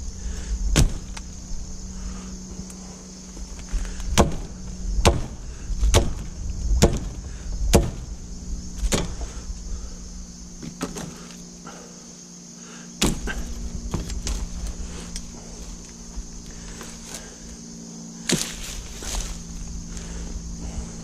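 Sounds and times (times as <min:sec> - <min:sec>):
blade chopping through stems: 0:04.0 - 0:08.1, 0:08.8 - 0:09.3, 0:13.0 - 0:14.5, 0:18.2 - 0:19.4.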